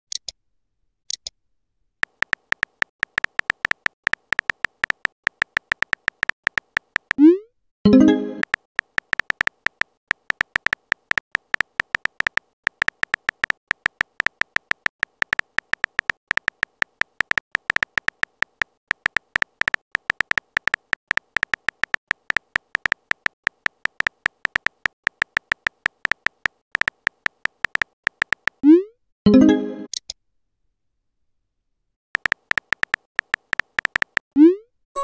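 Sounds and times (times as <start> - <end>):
phone keyboard clicks: 2.0 - 7.2, 8.4 - 28.6, 32.2 - 34.2.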